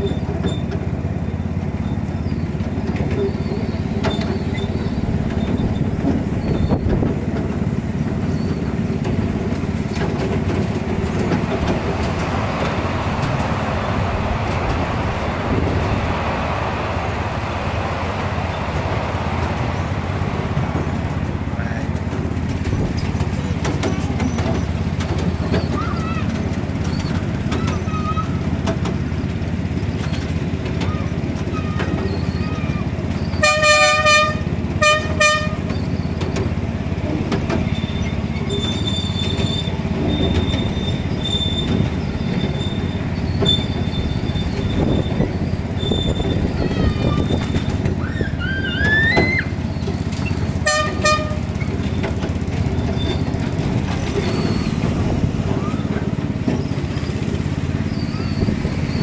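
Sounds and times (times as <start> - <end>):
train rumbling along track: 0.0 - 59.0
locomotive horn toots: 33.3 - 36.0, 50.3 - 51.8
thin high squeal: 37.7 - 47.8, 54.0 - 54.9, 57.8 - 59.0.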